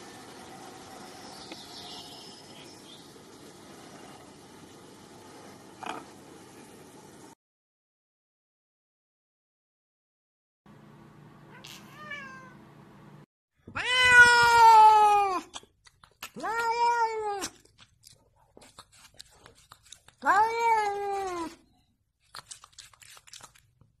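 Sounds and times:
cat meowing: 0:11.5 - 0:12.6, 0:13.7 - 0:15.5, 0:16.4 - 0:17.5, 0:20.2 - 0:21.6.

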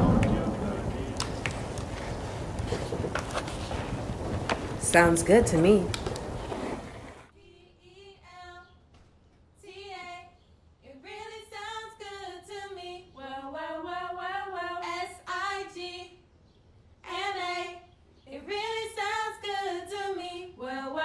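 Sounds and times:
woman singing unaccompanied: 0:07.4 - 0:08.9, 0:09.6 - 0:16.2, 0:17.0 - 0:21.0.

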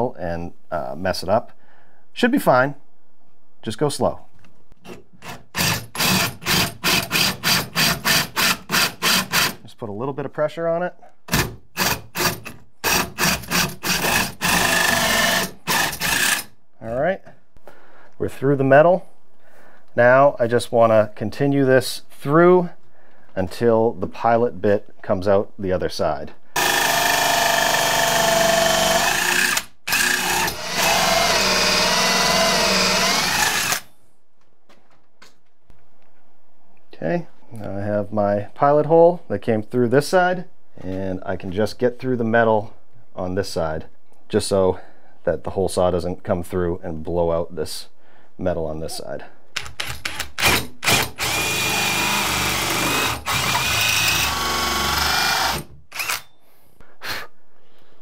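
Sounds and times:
cordless drill drilling into steel: 0:05.2 - 0:09.6, 0:11.3 - 0:16.5, 0:26.6 - 0:33.9, 0:50.1 - 0:56.3.

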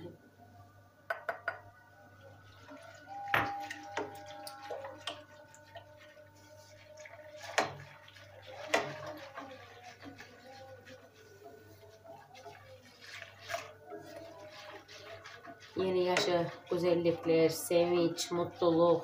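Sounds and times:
milk pouring and splashing: 0:02.2 - 0:19.0
whisk clinking against pot: 0:02.7 - 0:17.2.

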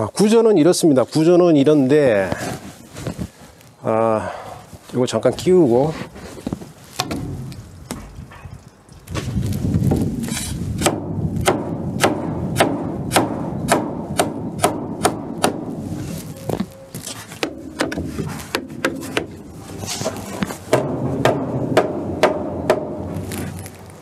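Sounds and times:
wood rubbing: 0:15.2 - 0:24.0.

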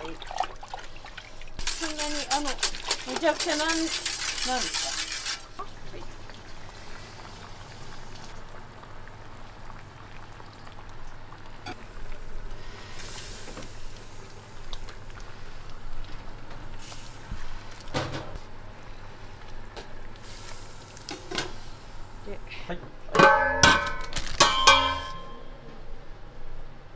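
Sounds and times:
soup boiling: 0:00.0 - 0:22.3.

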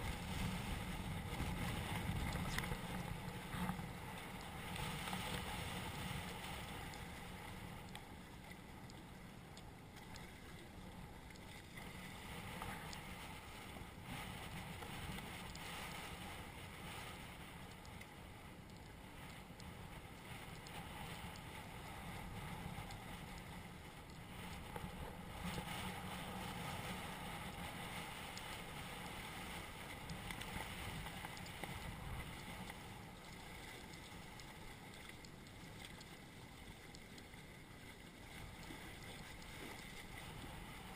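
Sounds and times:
wind on microphone: 0:00.0 - 0:06.9
water washing along hull: 0:00.0 - 0:40.9.

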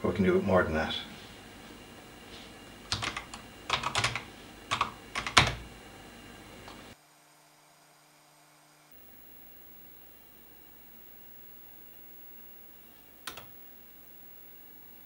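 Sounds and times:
faint hiss: 0:09.0 - 0:15.0.

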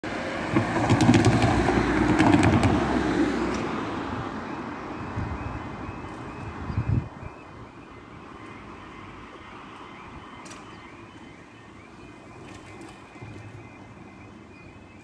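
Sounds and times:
car tyres knocking on rails: 0:00.4 - 0:03.2
pulsing crossing alarm tone: 0:04.2 - 0:15.0.

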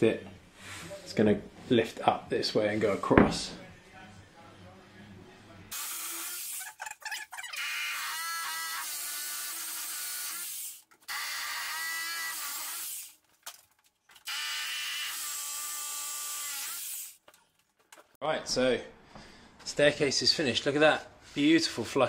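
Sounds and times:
hammer drill boring into wood: 0:05.7 - 0:13.2, 0:14.2 - 0:17.2.

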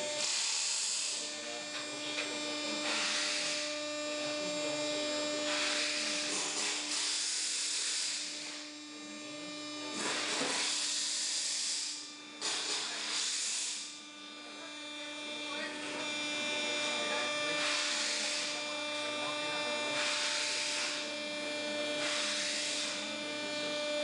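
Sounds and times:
hydraulic rushing hiss: 0:00.0 - 0:01.2, 0:02.8 - 0:03.8, 0:05.4 - 0:08.6, 0:09.9 - 0:14.0, 0:17.5 - 0:18.6, 0:19.8 - 0:21.1, 0:22.0 - 0:23.0
electric motor and pump humming: 0:00.0 - 0:24.0.

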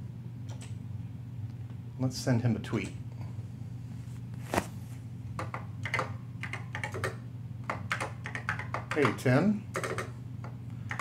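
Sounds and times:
mechanical keyboard typing: 0:05.4 - 0:10.1.

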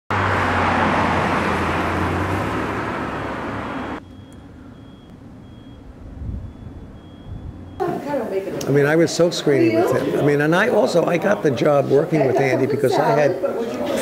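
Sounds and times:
vehicle engine hum: 0:00.1 - 0:08.2
quiet street ambience: 0:00.1 - 0:14.0
road noise: 0:00.1 - 0:14.0
faint high beep: 0:03.8 - 0:07.9.

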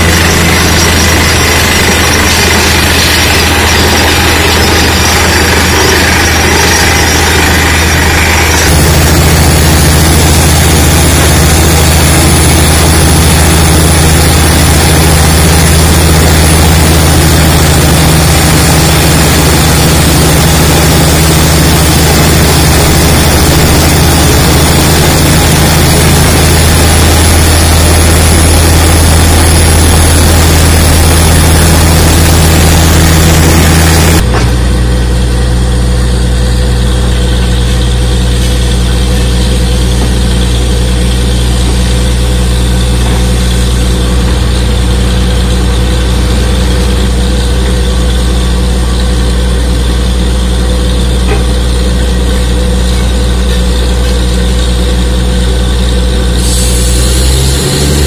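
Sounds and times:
air drilling hiss: 0:00.0 - 0:34.2, 0:56.3 - 0:58.0
drilling rig engine hum: 0:00.0 - 0:58.0.

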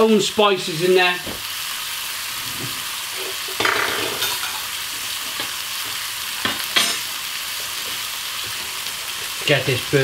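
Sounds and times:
meat sizzling in pans: 0:00.0 - 0:10.0.

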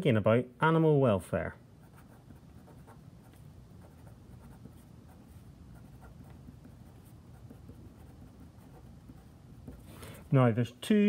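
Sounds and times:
pen scratching on paper: 0:01.8 - 0:10.0.

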